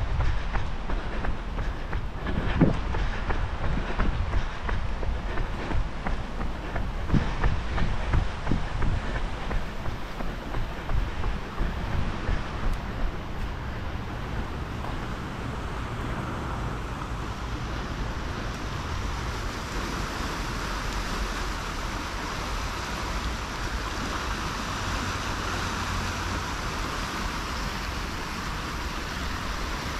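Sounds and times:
river water rushing: 0.0s - 29.9s.

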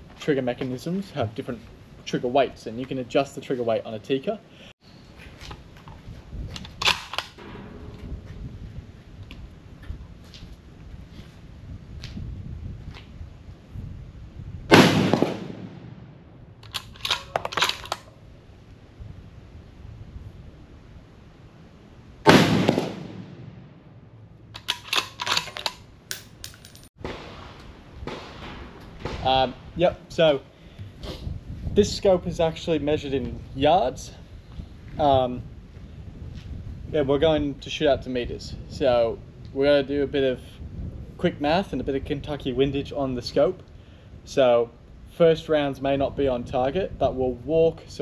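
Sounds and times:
rifle bolt clicks and clacks: 6.5s - 7.4s, 16.6s - 18.1s, 24.6s - 26.9s
rifle shot: 6.8s - 8.2s, 14.7s - 18.0s, 22.2s - 23.9s, 27.0s - 29.4s.

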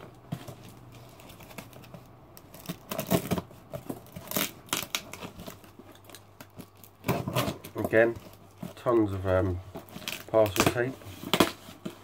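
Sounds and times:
parcel tape ripping off cardboard: 1.2s - 7.8s.

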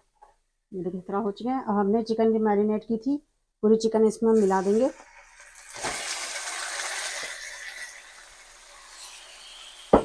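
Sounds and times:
chicken sizzling in hot oil: 4.4s - 10.0s.

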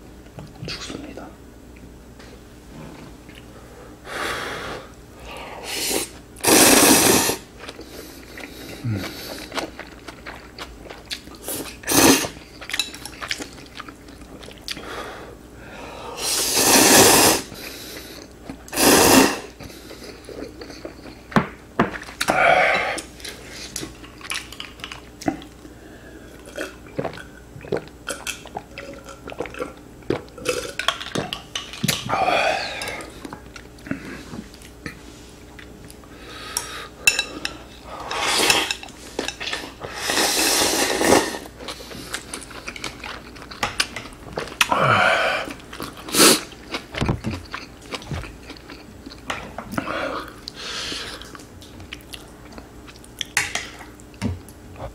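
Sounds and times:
noodle slurping: 5.7s - 7.4s, 16.2s - 17.5s, 39.9s - 41.8s
chewing: 7.6s - 11.8s, 12.4s - 14.8s, 19.6s - 25.7s, 26.3s - 32.1s, 41.5s - 44.8s, 45.4s - 54.2s.

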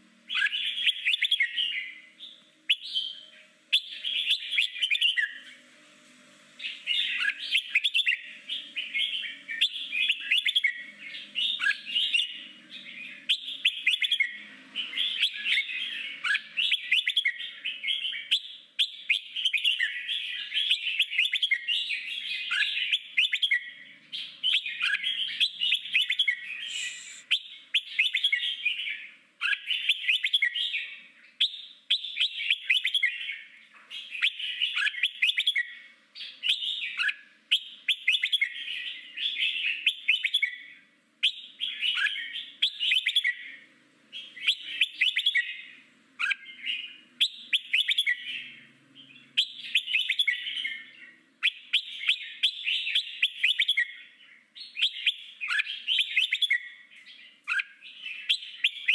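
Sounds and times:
bird singing high notes: 24.7s - 27.5s.

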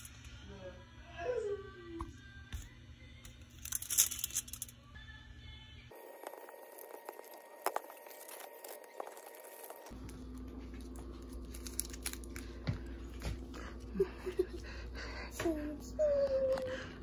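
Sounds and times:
foil wrappers crinkling: 3.5s - 4.7s, 5.9s - 14.8s.

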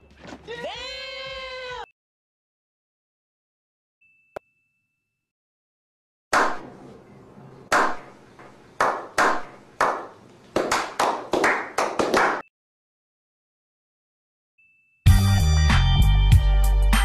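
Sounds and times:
men clapping: 8.8s - 12.4s.

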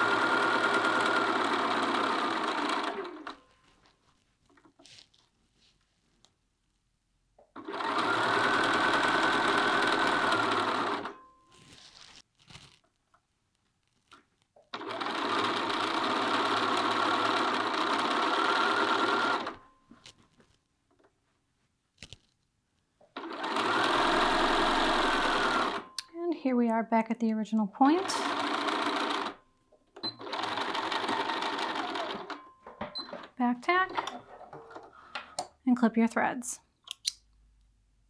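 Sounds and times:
sewing machine stitching: 0.0s - 3.4s, 7.5s - 11.1s, 14.7s - 19.6s, 23.1s - 25.9s, 27.8s - 29.4s, 30.0s - 32.4s.

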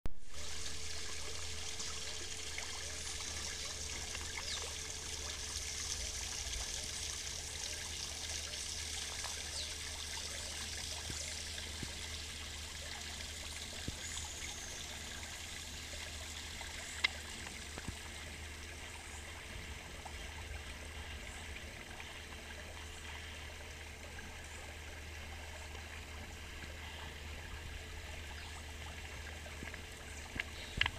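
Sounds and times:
water trickling: 0.2s - 30.9s
faint clicks: 29.6s - 30.9s.

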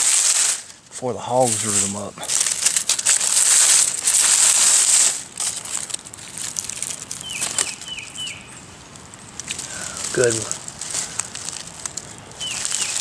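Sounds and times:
dry leaves crunching underfoot: 0.0s - 13.0s
bird calling high notes: 7.2s - 8.8s.

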